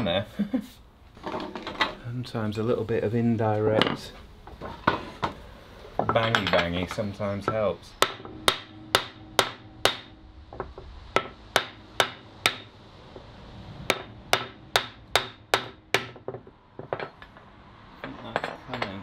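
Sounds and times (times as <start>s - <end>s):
wooden mallet tapping steel bolt: 7.5s - 12.7s.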